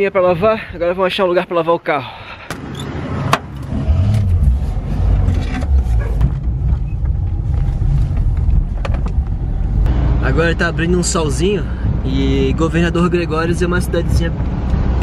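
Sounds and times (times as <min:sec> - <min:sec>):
road noise: 0:00.0 - 0:15.0
van engine running: 0:04.1 - 0:12.6.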